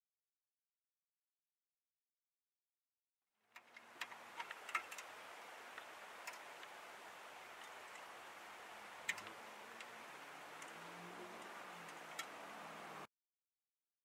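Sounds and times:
faint steady hiss: 3.5 - 13.1.

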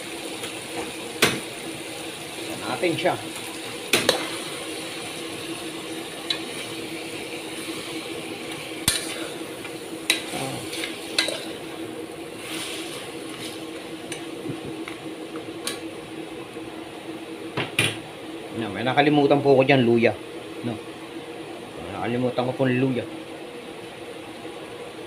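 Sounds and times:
meat sizzling in oil: 0.0 - 17.4
steady low hum: 0.0 - 25.0.

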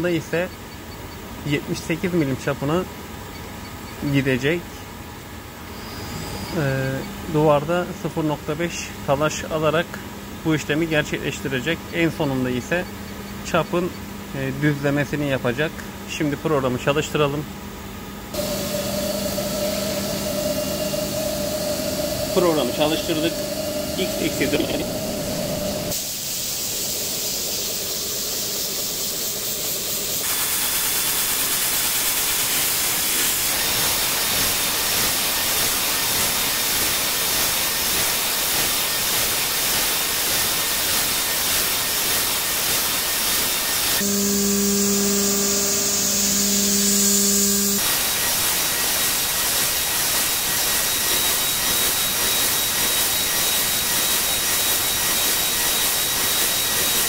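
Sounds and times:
low hum with overtone: 18.2 - 26.0, 44.0 - 47.8
milling machine cutting metal: 18.4 - 26.0, 30.2 - 57.0.

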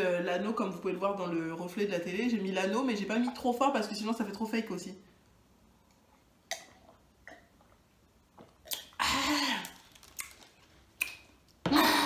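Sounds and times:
people drinking and swallowing: 6.5 - 10.0.

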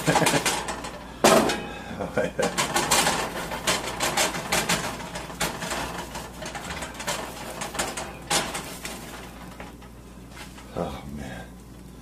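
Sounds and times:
spatula scraping a frying pan: 2.5 - 10.7.

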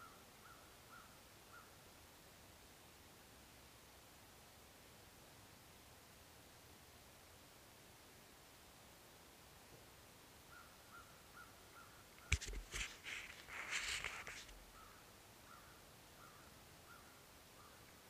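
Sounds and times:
bird calling: 10.5 - 18.0
camera scraping and rustling: 12.2 - 14.6.

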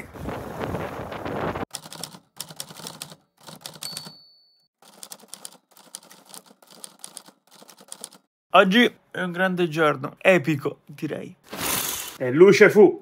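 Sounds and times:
typewriter bell ding: 3.7 - 4.7.

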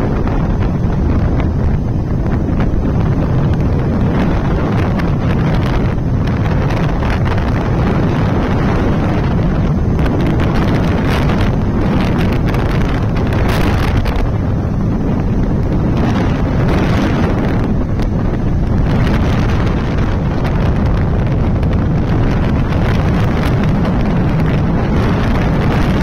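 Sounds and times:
motorcycle running noise: 0.0 - 26.0
wind buffeting microphone: 0.0 - 26.0.

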